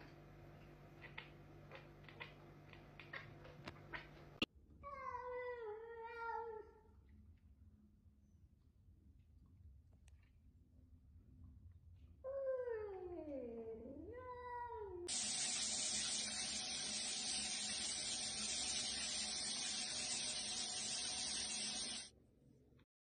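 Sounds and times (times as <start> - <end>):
loud steady hissing rush: 15.1 - 22.1.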